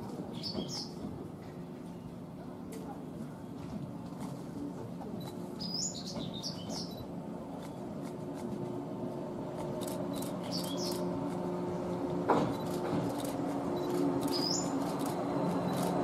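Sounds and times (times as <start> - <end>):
small birds chirping: 0.3 - 1.0, 5.2 - 8.0, 9.8 - 11.2, 12.6 - 16.0
electric train humming: 6.2 - 16.0.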